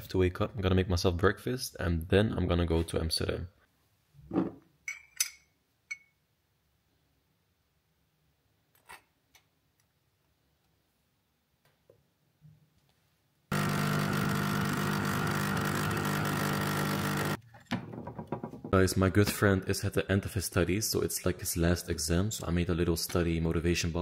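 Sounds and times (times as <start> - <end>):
coffee machine pump running: 13.5 - 17.4.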